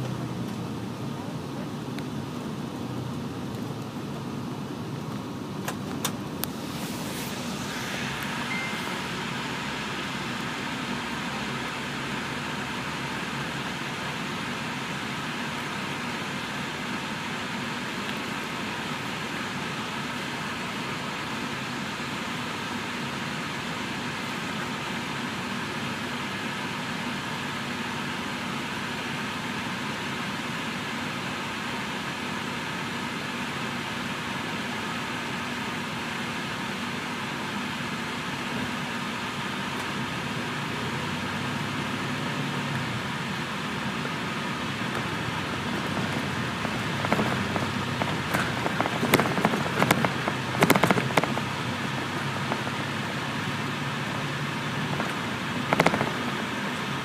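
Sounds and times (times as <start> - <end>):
bus diesel engine: 0.0 - 57.0
clattering knocks and rattles: 44.9 - 52.9.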